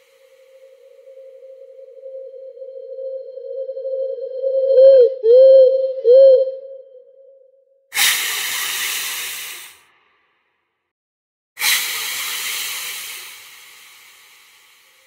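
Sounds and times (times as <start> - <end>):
loud long hisses: 8.0 - 9.8, 11.6 - 15.0.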